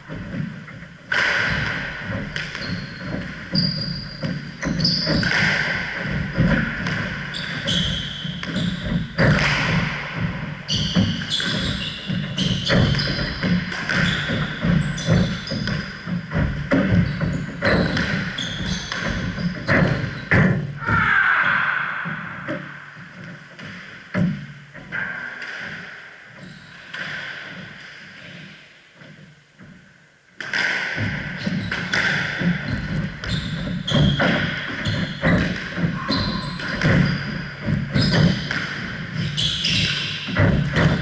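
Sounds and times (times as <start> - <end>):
shoes squeaking on wooden floor: 0.0 - 21.0, 31.1 - 41.0
squash ball smacking racket and walls: 0.0 - 21.0, 22.0 - 29.8, 30.4 - 41.0.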